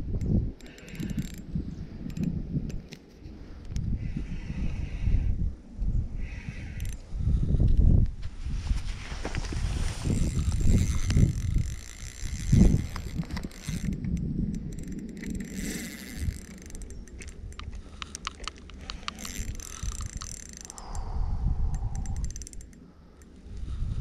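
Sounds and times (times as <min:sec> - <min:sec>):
fishing reel ticking: 0:00.1 - 0:02.8, 0:10.0 - 0:23.8.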